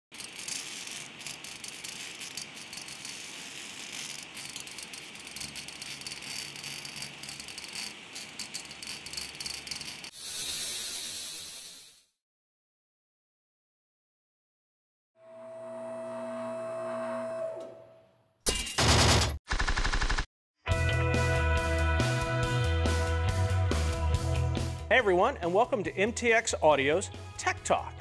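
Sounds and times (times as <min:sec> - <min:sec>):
crackling and hissing sparks: 0:00.1 - 0:12.0.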